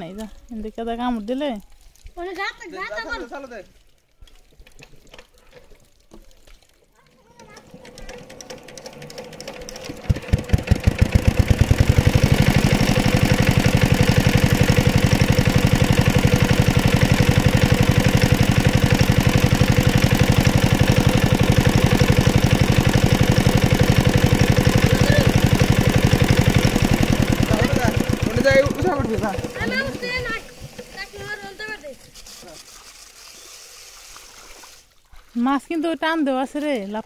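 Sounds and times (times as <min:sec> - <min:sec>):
water pump engine running: 0:07.0 - 0:35.4.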